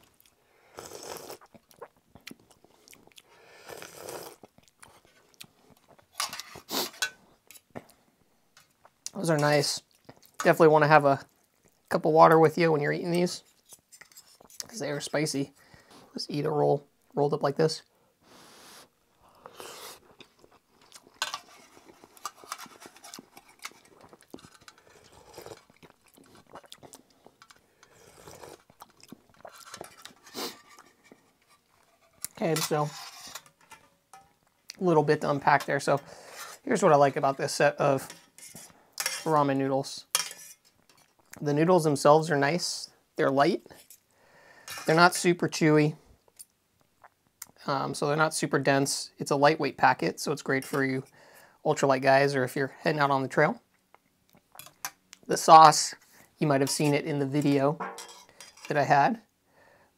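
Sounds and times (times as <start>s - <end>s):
chewing: 0.0s - 6.1s, 19.3s - 32.4s
person slurping noodles: 0.7s - 1.8s, 3.5s - 4.5s, 18.4s - 20.2s, 24.8s - 27.1s, 27.9s - 28.7s, 29.4s - 30.7s
utensil clinking metal pot: 21.2s - 25.0s, 29.4s - 34.4s, 56.6s - 58.8s.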